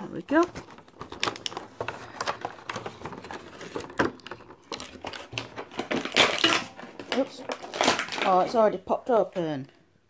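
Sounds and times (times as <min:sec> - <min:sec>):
plastic packaging crinkling: 0:00.0 - 0:08.7.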